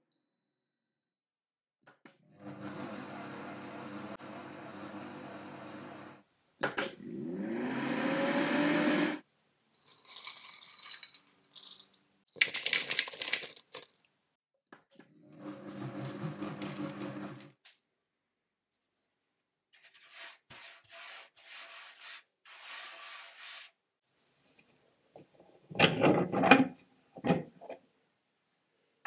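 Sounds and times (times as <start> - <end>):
food processor motor kneading dough: 2.1 - 6.2, 7.0 - 9.2, 15.0 - 17.6
hand rubbing flour on wooden table: 19.8 - 23.8.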